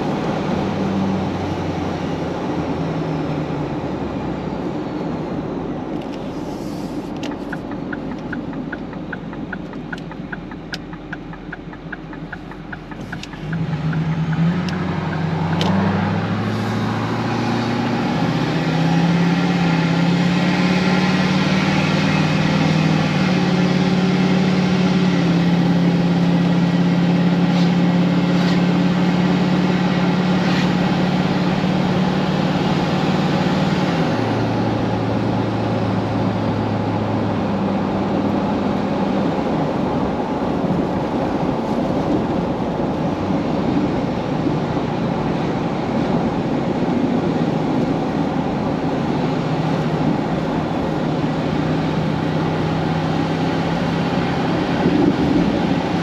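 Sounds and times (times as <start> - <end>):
car engine: 0.0 - 56.0
fast regular ticking: 7.2 - 15.3.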